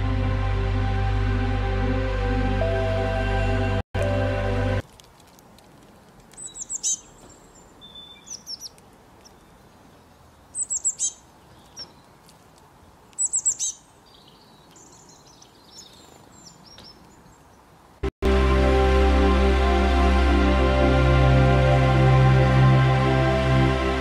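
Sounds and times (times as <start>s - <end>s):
faint outdoor hiss: 4.2s - 18.1s
soft bird chirps: 6.4s - 12.2s, 12.8s - 17.7s
songbird calling: 6.4s - 12.2s, 13.2s - 17.6s.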